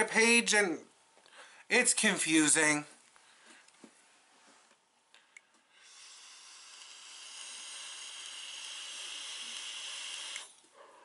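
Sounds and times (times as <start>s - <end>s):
electronic cigarette hissing: 5.8s - 10.5s.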